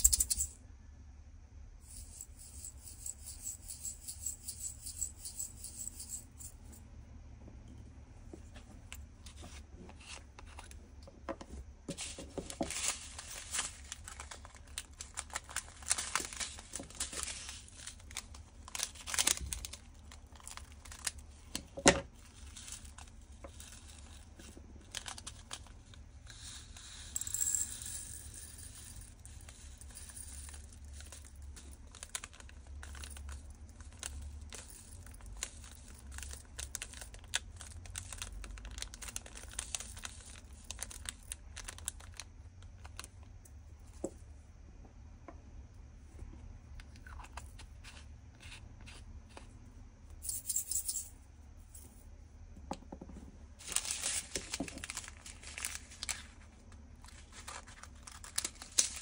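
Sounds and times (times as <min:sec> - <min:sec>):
plastic bags crinkling: 0:12.0 - 0:25.9, 0:29.8 - 0:43.1, 0:53.6 - 0:59.0
tiny resin beads rattling: 0:22.2 - 0:42.3.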